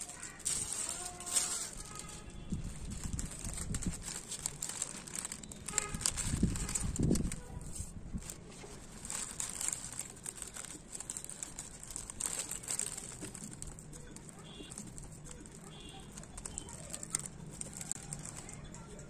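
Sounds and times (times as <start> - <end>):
plastic sheet crinkling: 0.0 - 19.0.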